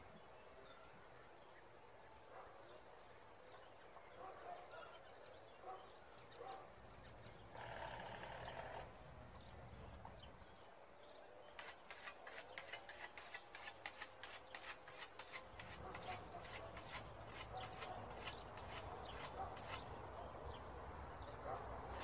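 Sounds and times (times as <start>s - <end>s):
whetstone scraping scythe blade: 11.6s - 19.9s.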